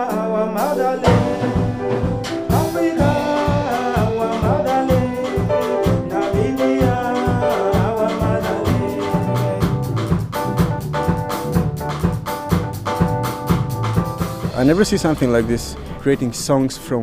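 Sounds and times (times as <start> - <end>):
person singing: 0.0 - 10.2
keyboard: 0.0 - 17.0
drum kit beat: 0.6 - 16.6
band playing a song: 0.6 - 16.9.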